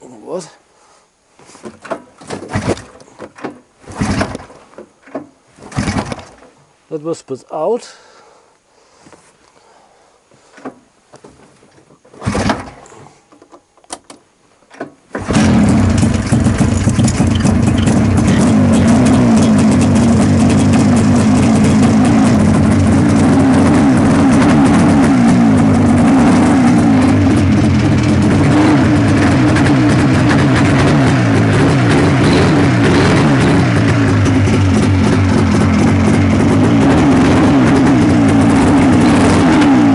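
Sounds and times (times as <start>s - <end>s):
engine knocks: 2.2s - 6.6s, 15.2s - 39.9s
snowmobile engine running: 15.3s - 39.9s.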